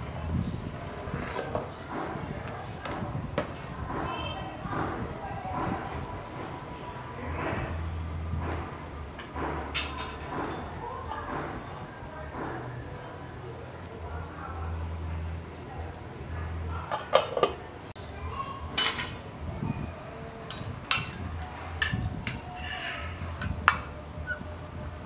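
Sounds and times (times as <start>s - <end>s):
soup boiling in a pot: 0.0s - 25.0s
utensil clinking against pot: 16.9s - 17.6s, 20.4s - 22.5s, 23.4s - 24.0s.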